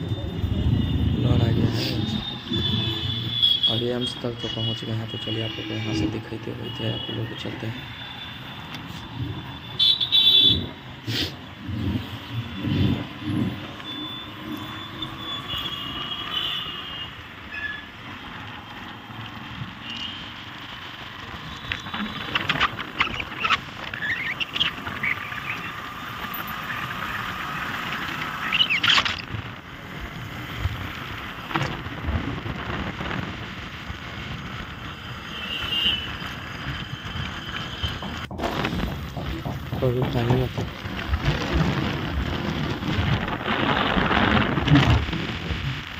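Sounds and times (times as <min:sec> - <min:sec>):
passing vehicles: 0:00.0 - 0:45.9
wind rush: 0:26.8 - 0:34.8, 0:37.9 - 0:45.9.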